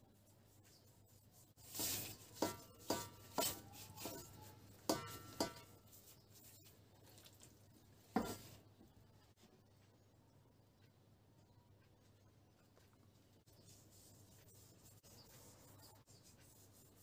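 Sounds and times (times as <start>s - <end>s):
meat knocking against roasting pan: 2.4s - 4.2s, 4.9s - 5.8s.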